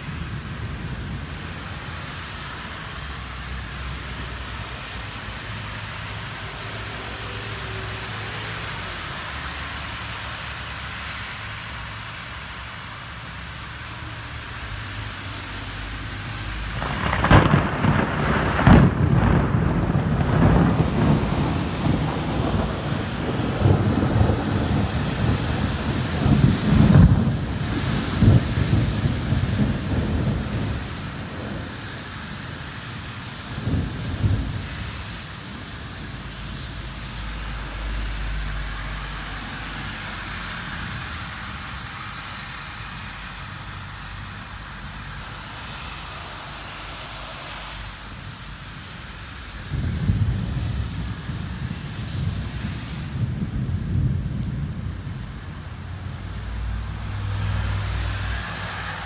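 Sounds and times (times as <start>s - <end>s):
rain hiss: 0.0s - 59.0s
thunder crack and rumbling: 16.3s - 39.1s, 49.6s - 59.0s.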